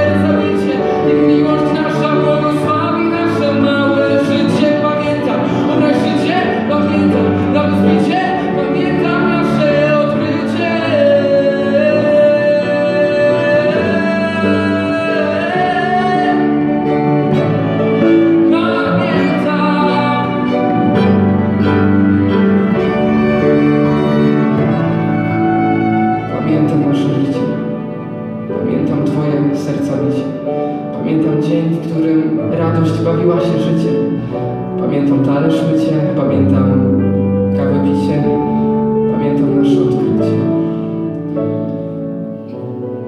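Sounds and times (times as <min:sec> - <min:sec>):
man singing: 0:00.0 - 0:24.5, 0:25.9 - 0:27.9, 0:28.5 - 0:40.9.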